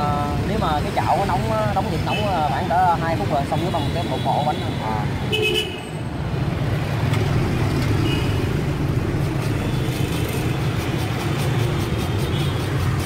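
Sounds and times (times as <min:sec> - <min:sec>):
busy street traffic: 0:00.0 - 0:13.0
motorbike engines passing: 0:03.8 - 0:13.0.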